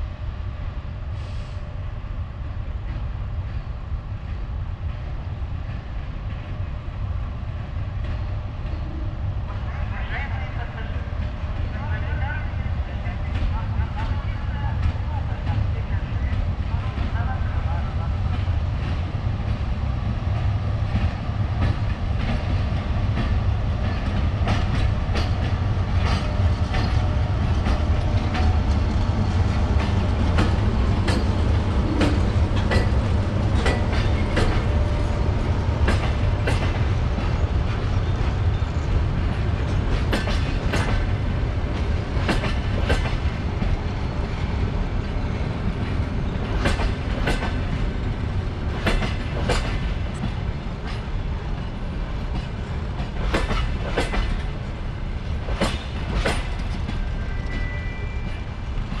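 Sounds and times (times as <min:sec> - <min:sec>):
train rumbling past: 0:00.0 - 0:59.0
wheels clacking over rail joints: 0:20.9 - 0:44.6, 0:45.4 - 0:57.7.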